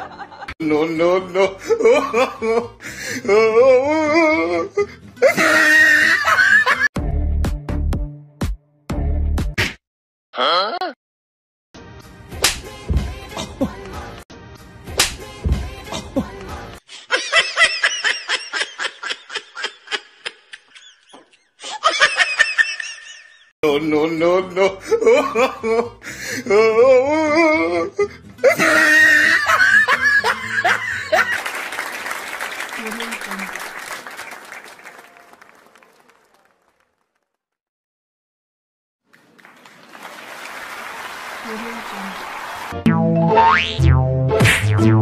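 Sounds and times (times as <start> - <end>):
applause: 31.2 - 37.4, 39.0 - 42.8.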